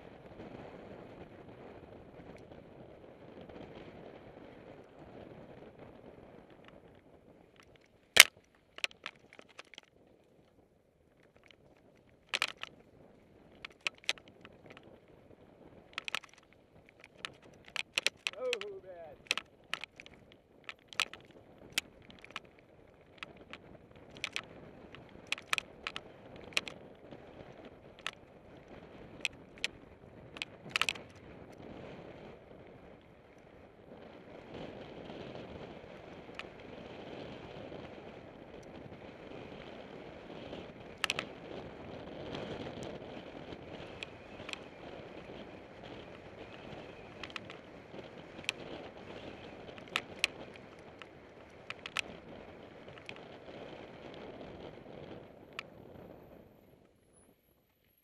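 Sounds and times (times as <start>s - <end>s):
bike clacking and rattling: 7.6s - 9.9s, 12.2s - 12.7s, 13.6s - 14.9s, 15.9s - 26.9s, 27.9s - 28.2s, 30.3s - 31.2s, 41.0s - 41.4s, 45.9s - 52.2s, 52.8s - 53.4s.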